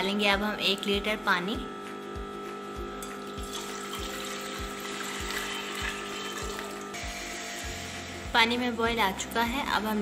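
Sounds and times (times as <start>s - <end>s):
background music with low beat: 1.0s - 10.0s
water pouring into metal pot: 3.4s - 6.8s.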